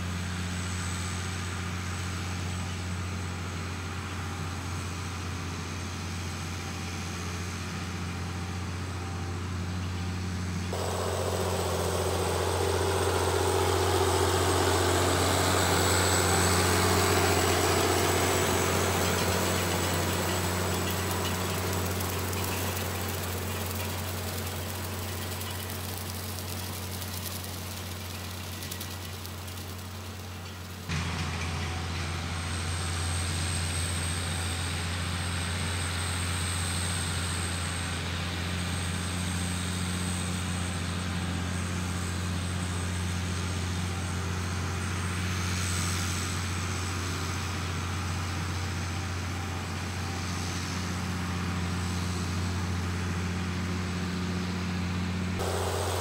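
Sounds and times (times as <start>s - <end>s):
tractor diesel engine running: 10.7s - 33.4s, 55.1s - 56.0s.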